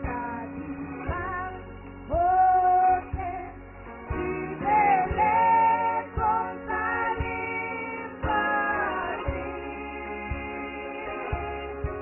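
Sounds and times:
low beat: 0:01.1 - 0:10.6
women singing gospel together: 0:04.1 - 0:12.0.

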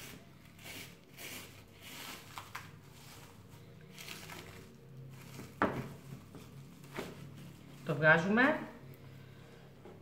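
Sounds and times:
plastic cling film crinkling: 0:01.0 - 0:08.6.

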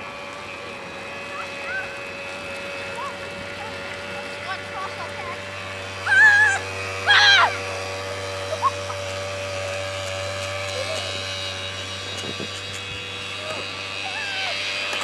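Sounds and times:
quad bike engine droning: 0:00.0 - 0:15.0
high-pitched yells: 0:06.0 - 0:07.6.

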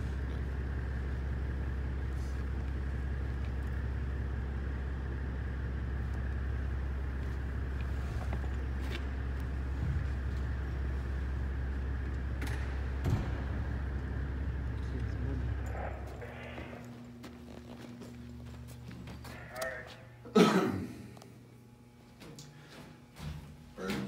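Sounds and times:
high whine: 0:00.0 - 0:22.1
low mechanical drone: 0:00.0 - 0:24.0.

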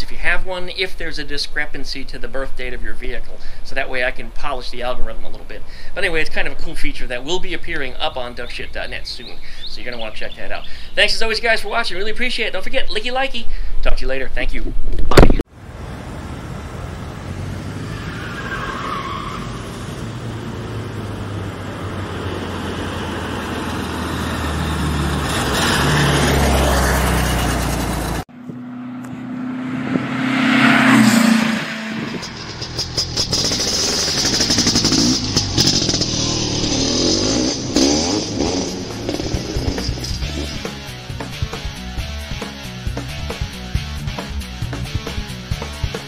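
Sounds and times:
car engine passing by: 0:15.6 - 0:40.9.

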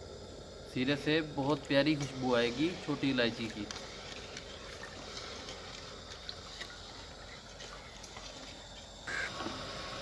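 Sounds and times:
syrup bubbling in a pot: 0:03.6 - 0:09.0.

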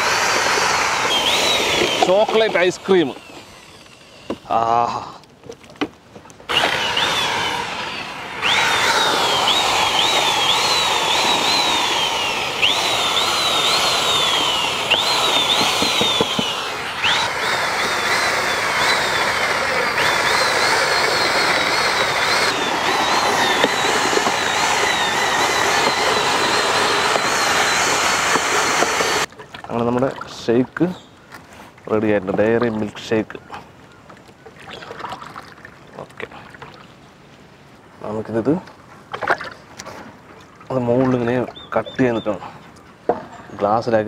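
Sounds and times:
electric mixer motor whine: 0:00.0 - 0:04.6, 0:06.5 - 0:29.3.

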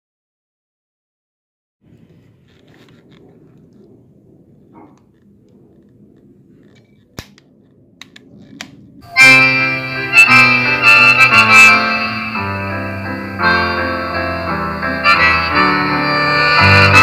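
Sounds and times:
loud free-reed instrument music: 0:09.0 - 0:17.0.

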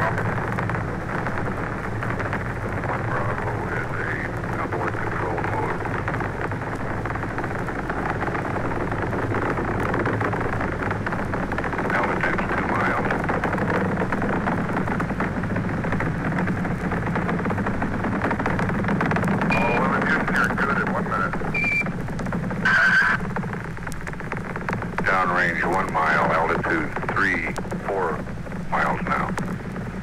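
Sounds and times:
faint voices: 0:00.0 - 0:06.7, 0:11.7 - 0:14.7, 0:19.5 - 0:21.6, 0:22.6 - 0:23.3, 0:25.0 - 0:29.4
rocket roar: 0:00.0 - 0:30.0.

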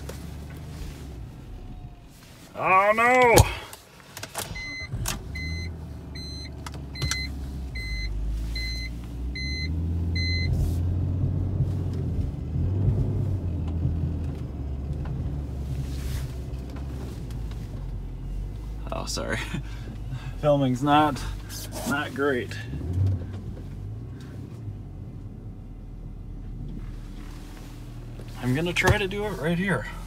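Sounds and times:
car engine starting and idling: 0:00.0 - 0:30.0
dashboard warning chime: 0:04.6 - 0:10.6.

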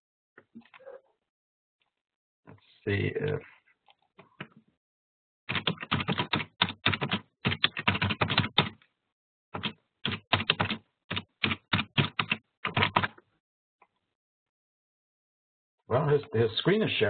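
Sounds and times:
typing on keyboard: 0:05.5 - 0:08.8, 0:09.6 - 0:13.2.

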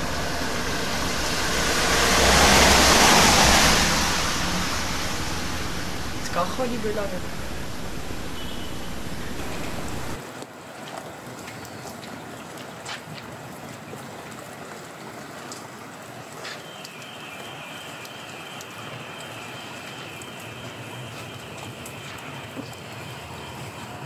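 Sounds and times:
hiss of wet street: 0:00.0 - 0:10.2, 0:16.4 - 0:24.0
steady high tone: 0:00.0 - 0:10.2.

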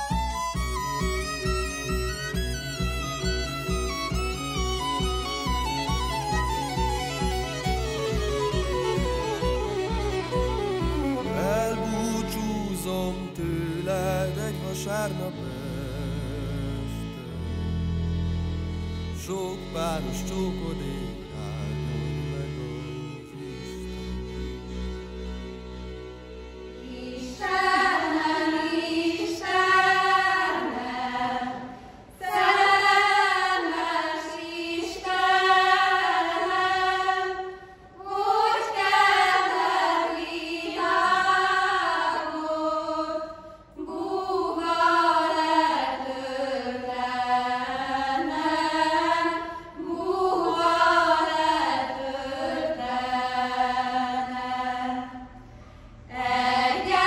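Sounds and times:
women singing unaccompanied: 0:26.9 - 0:55.2, 0:56.1 - 0:57.0.

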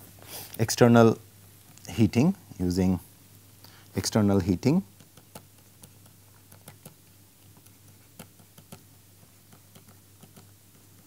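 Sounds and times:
low steady hum: 0:00.0 - 0:11.0
stylus tapping on pen tablet: 0:05.0 - 0:11.0.

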